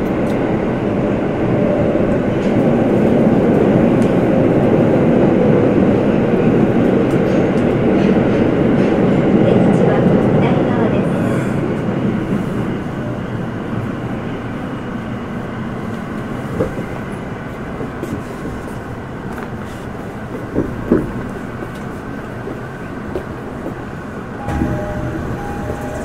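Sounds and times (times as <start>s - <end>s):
subway train rumbling: 0.0s - 26.0s
steady tones: 24.4s - 26.0s.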